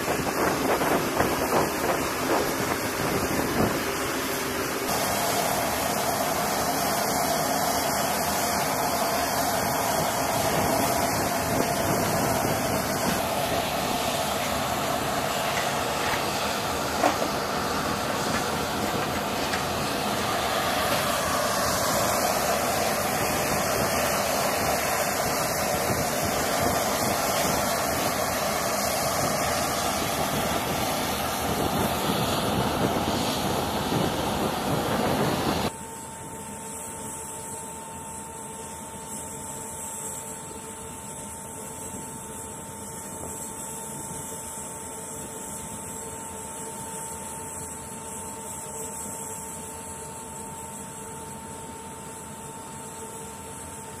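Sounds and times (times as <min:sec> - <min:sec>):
aircraft turbine rushing: 0:00.0 - 0:36.1.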